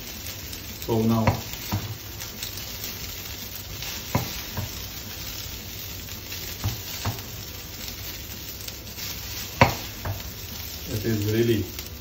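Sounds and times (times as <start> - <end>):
rice sizzling in a frying pan: 0.0 - 12.0
wooden spoon stirring: 0.6 - 11.3
spoon knocking against pan: 1.2 - 2.0, 4.1 - 4.8, 6.6 - 7.4, 9.6 - 10.3.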